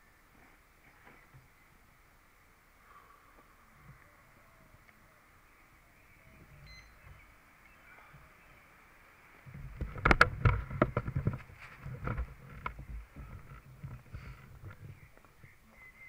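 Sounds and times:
faint outdoor background: 0.0s - 16.0s
camera handling knocks and clicks: 9.8s - 11.4s.

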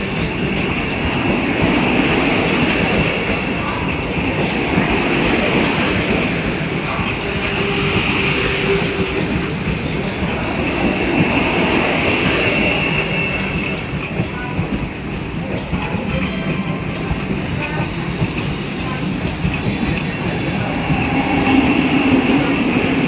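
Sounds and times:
train clicks: 0.0s - 23.0s
train wheels rumbling on rails: 0.0s - 23.0s.

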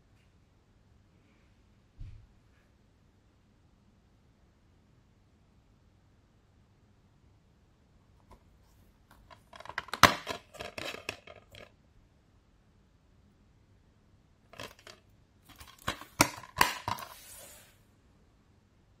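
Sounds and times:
plastic case clicking and rattling: 9.1s - 11.7s, 14.6s - 17.2s
plastic case snapping shut: 14.6s - 17.2s.

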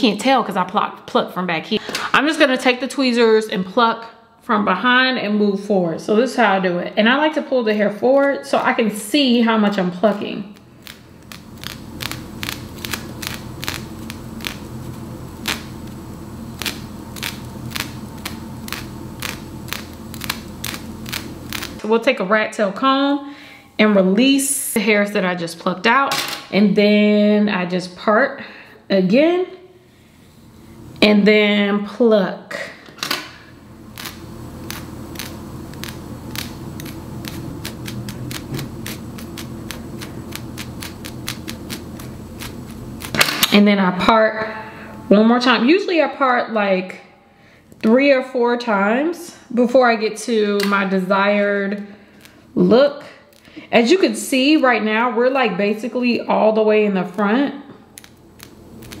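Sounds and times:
steady low hum: 0.0s - 59.0s
tweezers plucking hair clicks: 10.8s - 14.6s, 34.0s - 43.6s, 58.0s - 59.0s.

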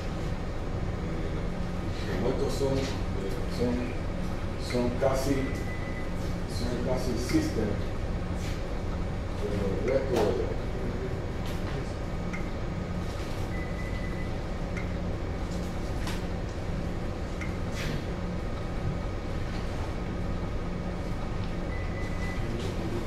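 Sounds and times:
ship machinery humming: 0.0s - 23.0s
faint high beeps: 13.5s - 14.4s, 21.7s - 22.5s.

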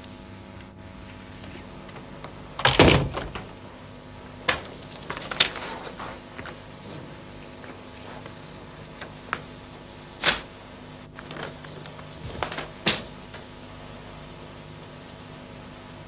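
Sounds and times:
door clicks and knocks: 2.6s - 3.6s, 4.4s - 5.9s
wooden door heavy thunk: 2.6s - 3.6s.

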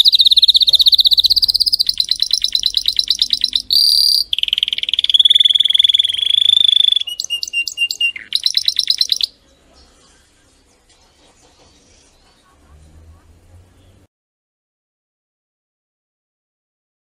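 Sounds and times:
canary singing trills: 0.0s - 10.6s.

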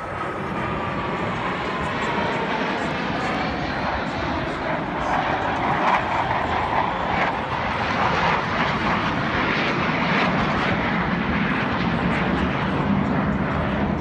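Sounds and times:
jet engines roaring past: 0.0s - 14.0s.

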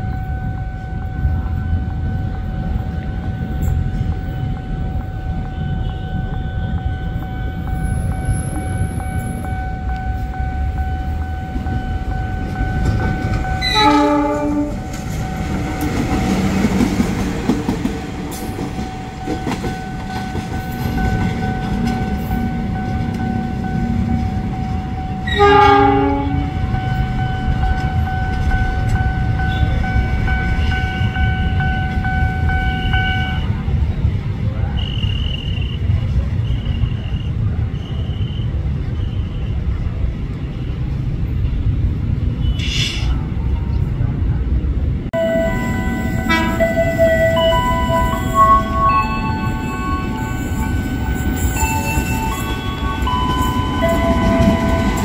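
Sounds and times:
locomotive engine and wheel rumble: 0.0s - 55.0s
train horn blasts: 13.4s - 15.2s, 25.2s - 27.1s, 45.2s - 50.7s.

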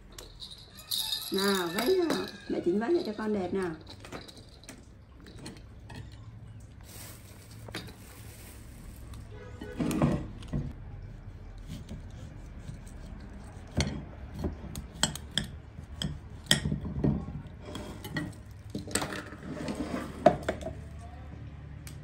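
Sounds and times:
knife cutting orange: 11.1s - 16.6s.

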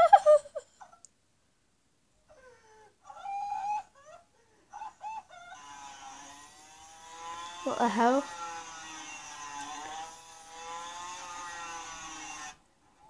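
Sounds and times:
motorcycle engine through tv speakers: 5.3s - 13.0s.

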